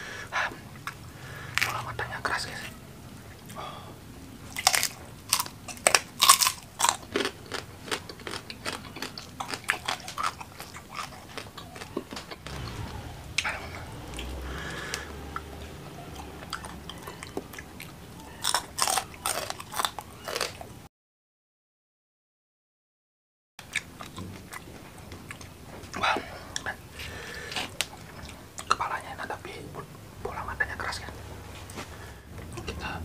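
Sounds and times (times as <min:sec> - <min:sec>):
crunching and chewing fried fish: 0:00.8 - 0:01.9, 0:04.5 - 0:15.4, 0:16.2 - 0:20.8, 0:23.6 - 0:28.8.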